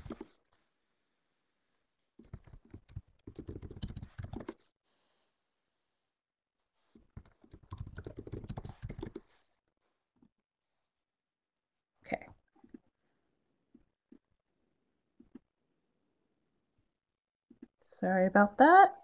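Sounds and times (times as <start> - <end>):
keyboard typing clicks: 2.2 - 4.6, 7.2 - 9.2.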